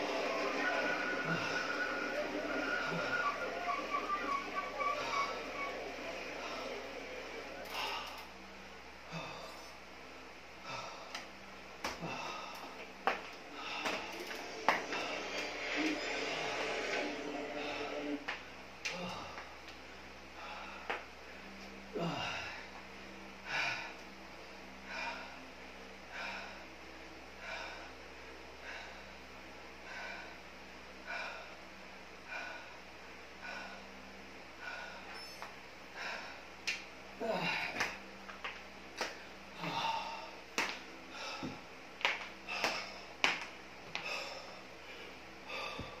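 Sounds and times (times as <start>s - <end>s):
steady low hum: 0.0s - 46.0s
man breathing hard: 9.0s - 9.8s, 10.6s - 18.2s, 20.3s - 21.1s, 24.8s - 35.2s, 35.8s - 36.6s, 39.5s - 41.7s, 42.4s - 43.2s, 43.9s - 46.0s.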